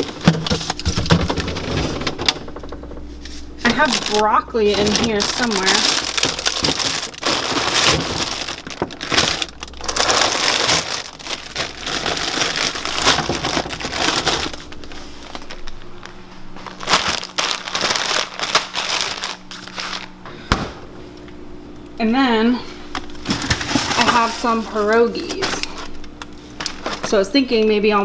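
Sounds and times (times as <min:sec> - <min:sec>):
faint steady hum: 0:00.0 - 0:28.0
plastic bags crinkling: 0:03.6 - 0:20.2, 0:23.0 - 0:27.6.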